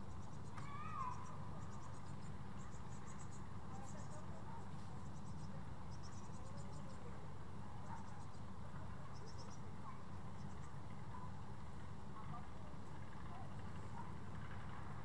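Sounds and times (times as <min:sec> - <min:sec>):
insects chirping rapidly: 0:00.0 - 0:04.2, 0:05.0 - 0:07.0.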